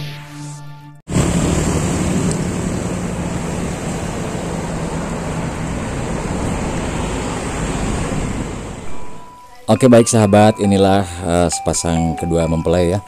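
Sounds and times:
low engine hum: 0:01.1 - 0:09.3
road traffic rushing: 0:01.1 - 0:09.7.

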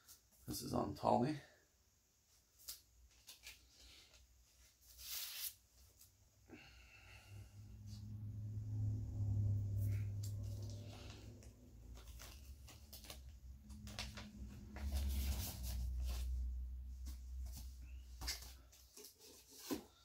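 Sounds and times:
paper sleeve rustling: 0:02.6 - 0:06.0, 0:11.9 - 0:16.5
low rumble: 0:07.2 - 0:17.4.

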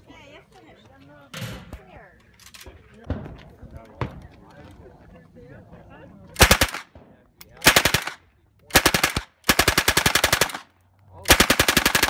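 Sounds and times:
submachine gun firing bursts: 0:06.4 - 0:06.9, 0:07.6 - 0:10.7, 0:11.3 - 0:12.0.

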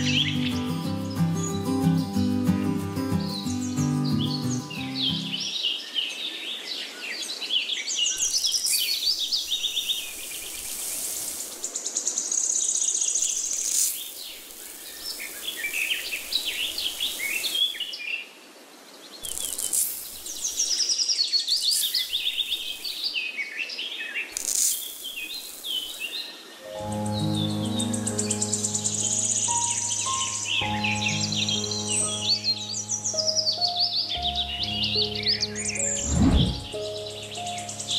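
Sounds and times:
small birds chirping: 0:00.0 - 0:18.2, 0:18.9 - 0:37.9
hiss: 0:08.6 - 0:09.2, 0:09.8 - 0:11.8, 0:13.2 - 0:17.8, 0:19.2 - 0:20.9, 0:21.6 - 0:23.0, 0:24.4 - 0:26.2.

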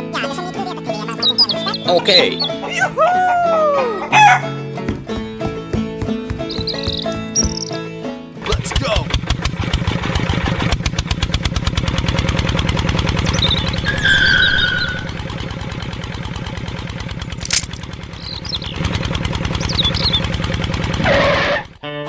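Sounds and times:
tractor diesel engine chugging: 0:08.4 - 0:21.8
sharp click: 0:17.4 - 0:17.8.

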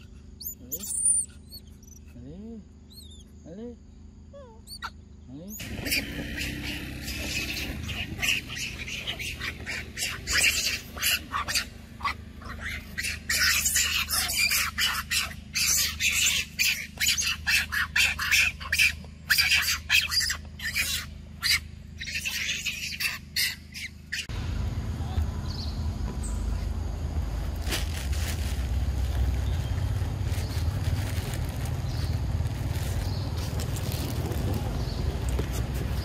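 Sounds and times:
young monkeys screeching: 0:00.0 - 0:03.5, 0:04.3 - 0:24.3.

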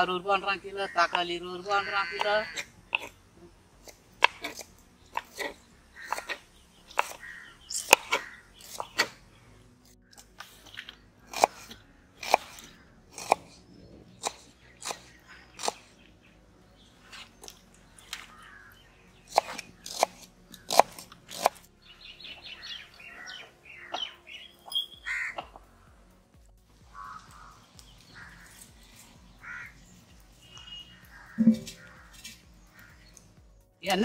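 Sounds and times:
birds calling: 0:00.0 - 0:34.0
knife chopping on wooden board: 0:03.8 - 0:07.2, 0:07.8 - 0:09.1, 0:11.3 - 0:13.5, 0:14.2 - 0:15.8, 0:19.3 - 0:21.6.

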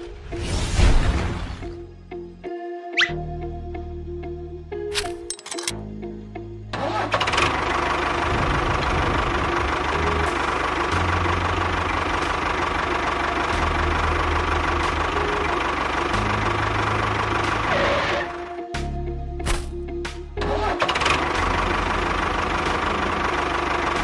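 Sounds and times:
tractor engine running: 0:06.7 - 0:18.5, 0:19.4 - 0:24.0.

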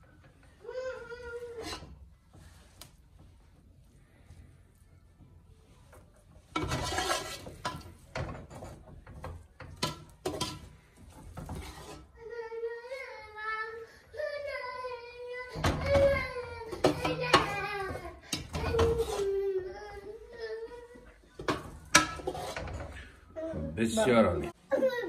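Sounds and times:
metal spoon scraping a pot: 0:01.4 - 0:02.0, 0:06.5 - 0:12.2, 0:16.6 - 0:19.5, 0:21.4 - 0:23.3
child wailing: 0:12.2 - 0:21.0.

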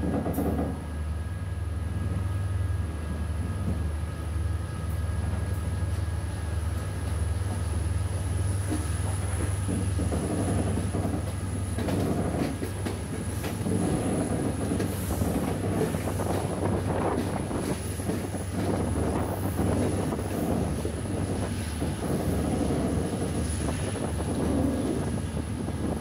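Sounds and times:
train engine drone: 0:00.0 - 0:26.0
wheel clatter over rail joints: 0:08.6 - 0:26.0.

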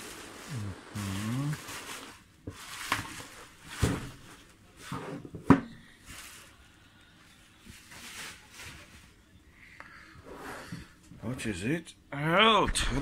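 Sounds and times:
bubble wrap rustling: 0:00.0 - 0:05.0, 0:05.7 - 0:09.3.

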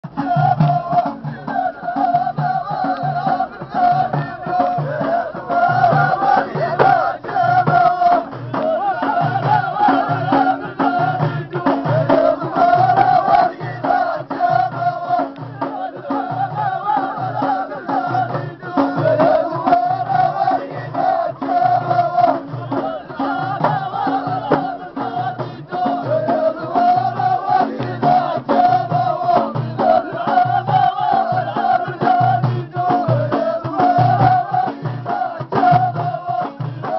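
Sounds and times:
frame drums beating: 0:00.0 - 0:36.9
men singing in chorus: 0:00.0 - 0:36.9.

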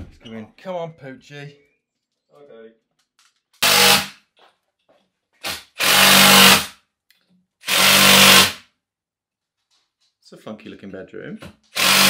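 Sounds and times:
power drill motor whine: 0:11.8 - 0:12.0.

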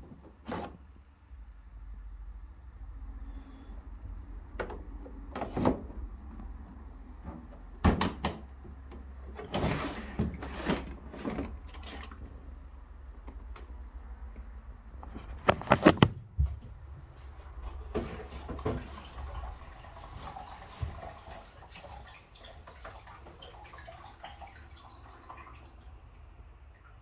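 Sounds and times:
plastic clicks and knocks: 0:15.0 - 0:16.2.

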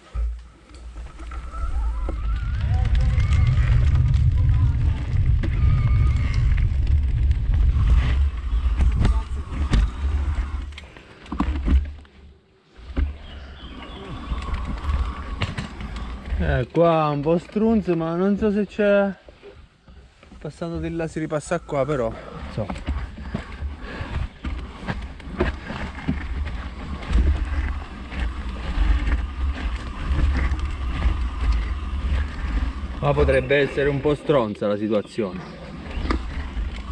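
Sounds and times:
bike knocks and rattles: 0:00.0 - 0:12.1, 0:12.8 - 0:18.2
bike rattling over bumps: 0:00.0 - 0:36.9
wind rumbling on microphone: 0:00.8 - 0:12.0, 0:19.6 - 0:36.9
wind buffeting microphone: 0:01.1 - 0:10.7.

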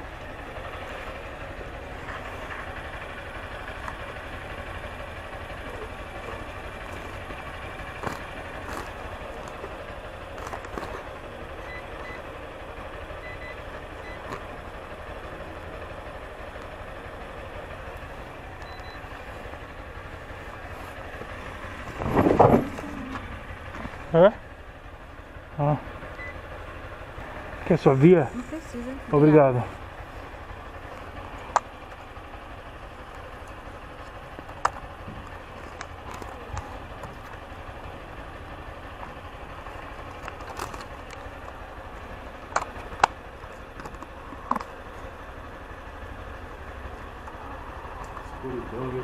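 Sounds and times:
motorcycle engine idling: 0:00.0 - 0:49.0
payment terminal beeps: 0:11.6 - 0:12.2, 0:13.2 - 0:14.2, 0:18.6 - 0:19.0, 0:26.2 - 0:26.4.

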